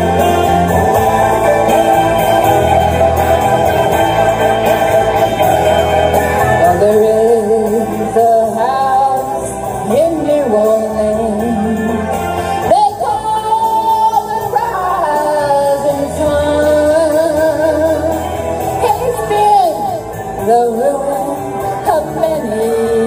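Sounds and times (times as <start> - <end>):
backing track: 0.0 - 23.0
woman singing karaoke: 6.1 - 23.0.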